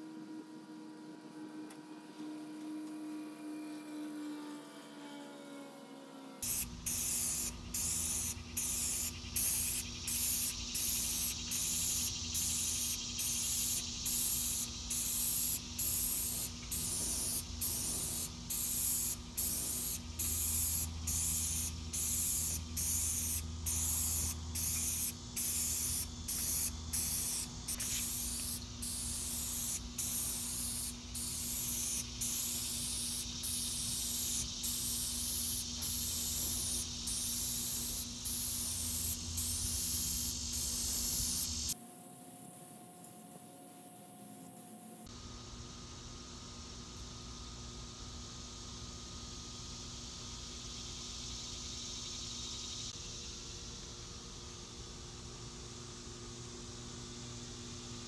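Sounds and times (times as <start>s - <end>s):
spray paint can hissing: 6.4s - 41.8s.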